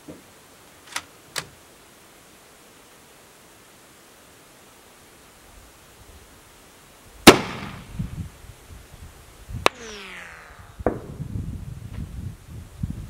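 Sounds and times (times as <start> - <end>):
distant rifle shots cracking: 7.3 - 7.9
falling whine: 9.6 - 11.8.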